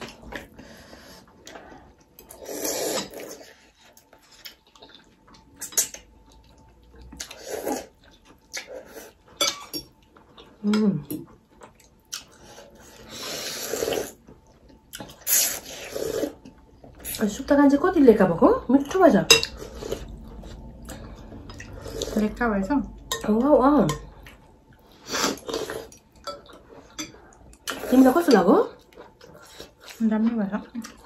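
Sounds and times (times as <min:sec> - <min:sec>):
wet noodle slurps: 0:13.0 - 0:14.2.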